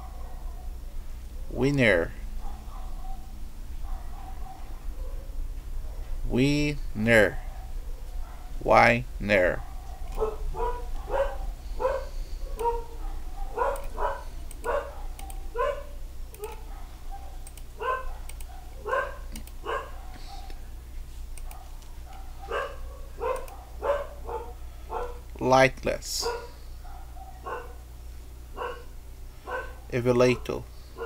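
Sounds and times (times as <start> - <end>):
dog barking: 0.0 - 0.8, 2.4 - 5.3, 7.4 - 8.6, 9.5 - 20.6, 21.4 - 25.2, 26.2 - 27.9, 28.5 - 31.0
faint clicks: 13.7 - 15.4, 16.3 - 16.6, 17.4 - 17.7, 18.3 - 19.6, 21.3 - 22.3, 23.3 - 23.6.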